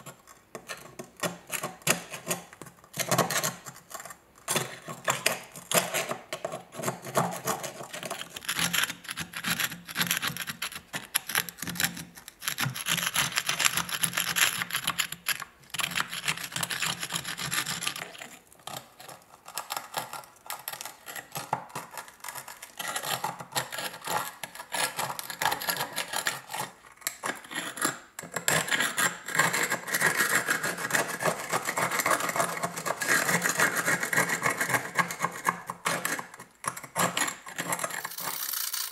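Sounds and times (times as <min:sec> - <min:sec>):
screwdriver scraping rust off metal: 0:38.0 - 0:38.9.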